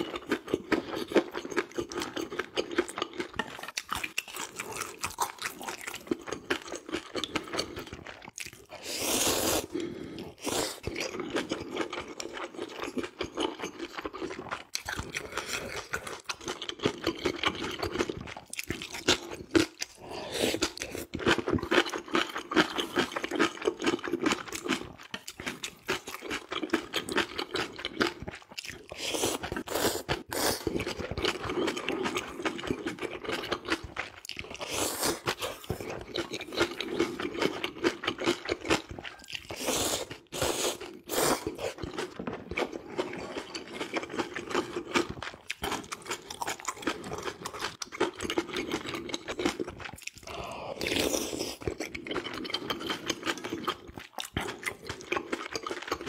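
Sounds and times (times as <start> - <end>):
chewing and mouth smacking: 0.0 - 8.8, 9.6 - 20.0, 20.6 - 56.0
loud slurps: 8.7 - 9.8, 39.5 - 41.8.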